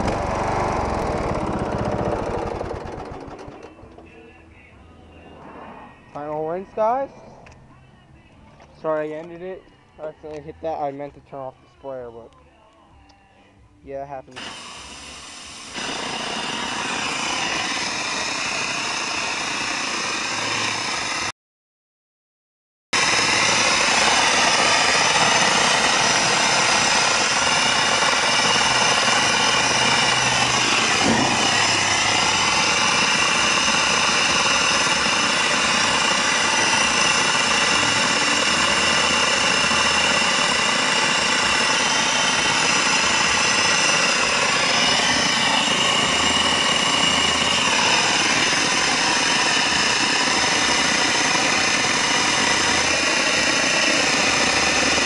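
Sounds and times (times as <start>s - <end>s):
pressure washer tones: 14.3s - 21.3s, 23.0s - 55.0s
pressure washer spraying: 14.4s - 21.3s, 23.0s - 55.0s.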